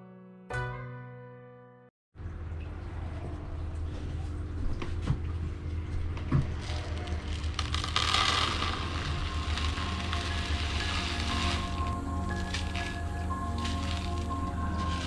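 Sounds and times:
low steady hum: 0:02.2 - 0:15.0
soil grains pouring: 0:06.6 - 0:15.0.

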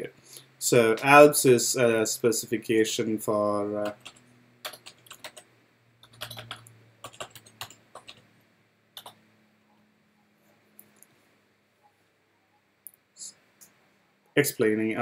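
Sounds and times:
typing on computer keyboard: 0:03.8 - 0:05.4, 0:06.0 - 0:08.3, 0:09.0 - 0:09.2.

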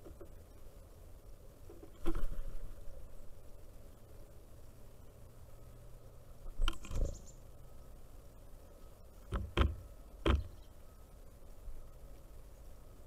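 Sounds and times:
woodpecker pecking on wood: 0:09.2 - 0:10.6.

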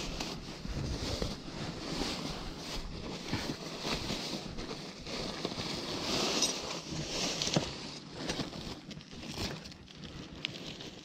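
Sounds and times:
plastic bag rustling: 0:00.0 - 0:11.0.

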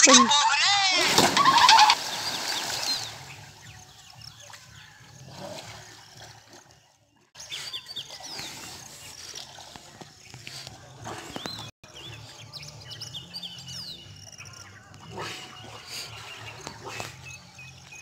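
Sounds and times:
water splashing: 0:00.0 - 0:07.0.

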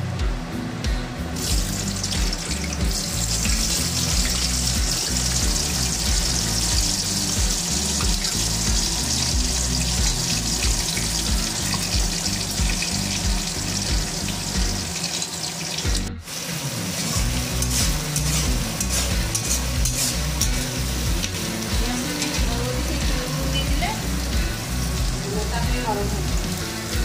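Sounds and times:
onions sizzling in hot oil: 0:01.3 - 0:27.0
spatula scraping pan: 0:17.2 - 0:22.6.

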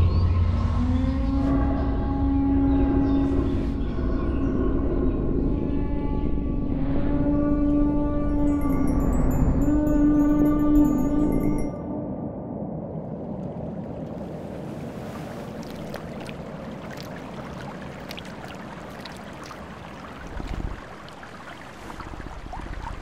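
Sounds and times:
low water swell: 0:00.0 - 0:23.0
water drips and splashes: 0:13.2 - 0:23.0
water lapping: 0:13.3 - 0:23.0.

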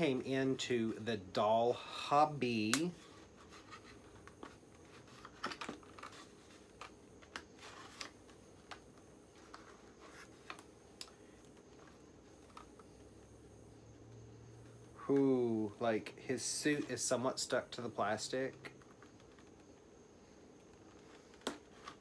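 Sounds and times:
cardboard and plastic packaging crinkling: 0:03.4 - 0:10.7.

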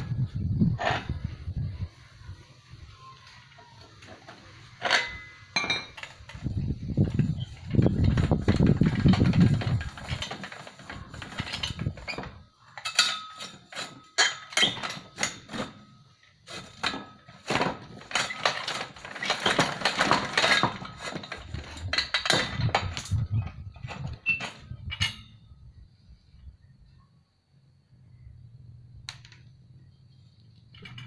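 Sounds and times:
hand-cranked machine clanking: 0:04.2 - 0:15.8, 0:16.5 - 0:25.4.

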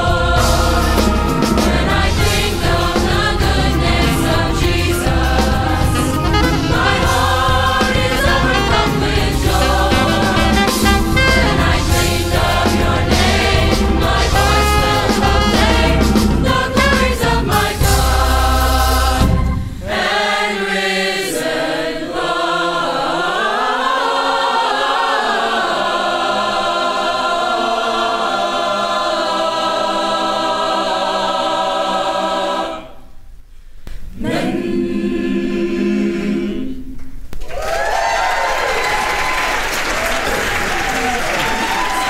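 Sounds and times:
band playing: 0:00.0 - 0:19.8
gospel choir singing: 0:00.0 - 0:33.2, 0:34.1 - 0:37.0
audience applause: 0:37.5 - 0:42.0.

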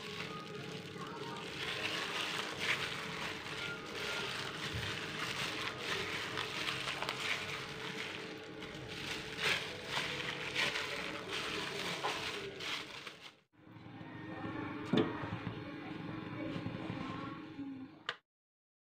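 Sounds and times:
crinkling plastic glove: 0:00.0 - 0:13.5
kneading sticky dough: 0:00.0 - 0:13.5.

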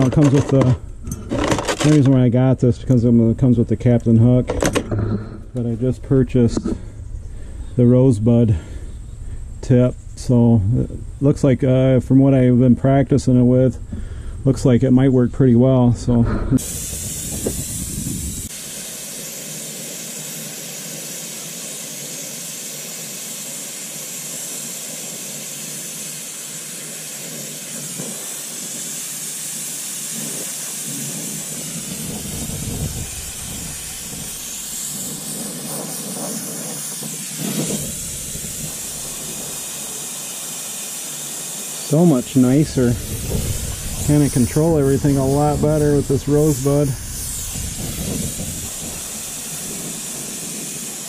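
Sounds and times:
brazing torch hissing: 0:16.2 - 0:51.0
low rumbles: 0:42.2 - 0:49.7.

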